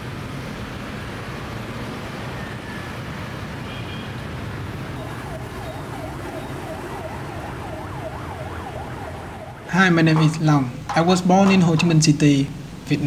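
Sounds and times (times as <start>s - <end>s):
street traffic noise: 0.0s - 13.0s
emergency siren wailing: 4.8s - 12.9s.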